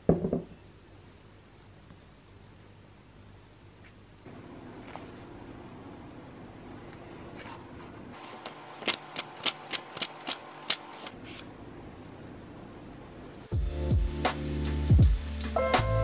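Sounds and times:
low room hum: 0:00.0 - 0:16.0
book pages turning: 0:07.3 - 0:11.5
sharp paper ticks: 0:08.2 - 0:11.1.

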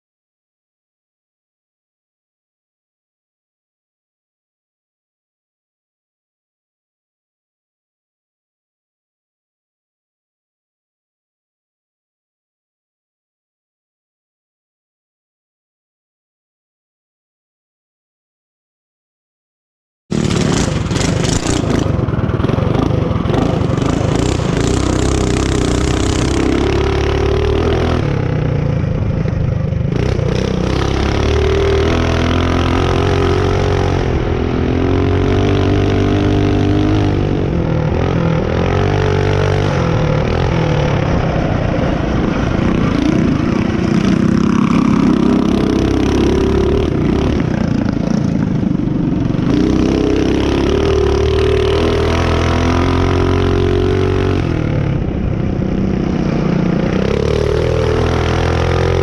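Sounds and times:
mini bike engine revving: 0:20.1 - 0:59.0.

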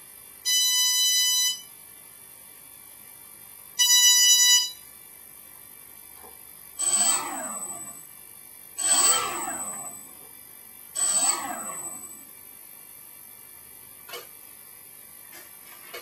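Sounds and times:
motor controller beep: 0:00.5 - 0:01.7, 0:03.8 - 0:04.9, 0:06.8 - 0:08.1, 0:08.8 - 0:10.2, 0:11.0 - 0:12.3
drone motors whining: 0:06.8 - 0:08.1, 0:08.8 - 0:10.4, 0:11.0 - 0:12.4.

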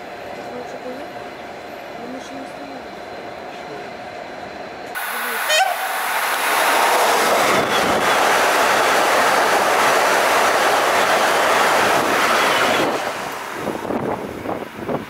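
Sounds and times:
passing train rush of air: 0:00.0 - 0:15.0
train wheels clattering on rails: 0:06.0 - 0:14.2.

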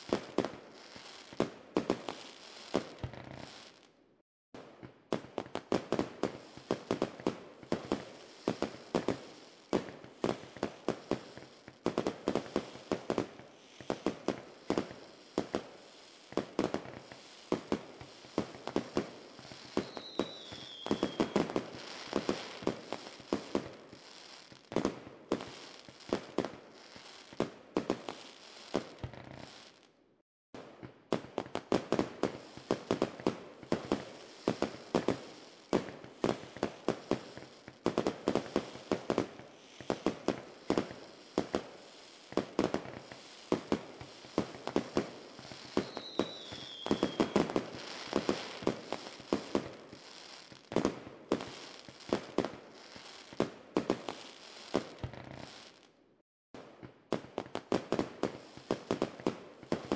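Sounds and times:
fireworks bangs and crackles: 0:00.0 - 0:04.0, 0:04.6 - 0:30.0, 0:30.6 - 0:56.0, 0:56.6 - 0:59.9
falling firework whistle: 0:16.3 - 0:26.2, 0:42.3 - 0:55.8.

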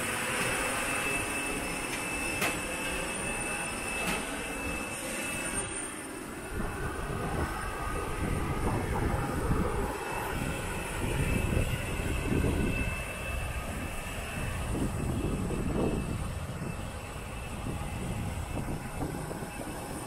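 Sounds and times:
jet airliner whine: 0:00.0 - 0:20.0
wind buffeting microphone: 0:06.4 - 0:20.0.

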